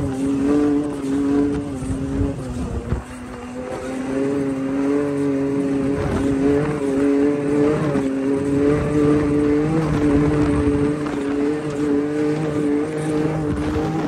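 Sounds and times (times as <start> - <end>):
rush of terrain and wind: 0.0 - 14.0
vehicle engine running: 0.0 - 14.0.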